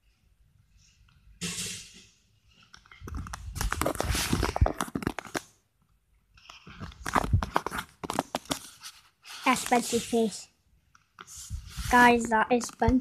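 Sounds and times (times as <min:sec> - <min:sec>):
bedding rustling on microphone: 0:03.0 - 0:05.2, 0:11.3 - 0:13.0.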